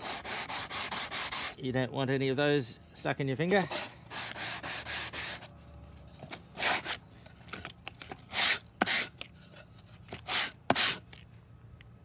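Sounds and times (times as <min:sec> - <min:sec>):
sandpaper scraping on plywood: 0:00.0 - 0:01.6, 0:03.6 - 0:05.5, 0:06.5 - 0:07.0, 0:08.3 - 0:09.2, 0:10.1 - 0:11.1.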